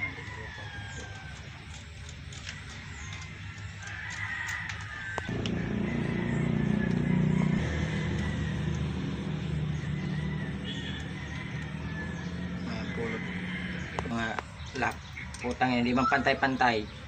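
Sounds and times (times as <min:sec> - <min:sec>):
engine drone: 0:05.3 - 0:15.3.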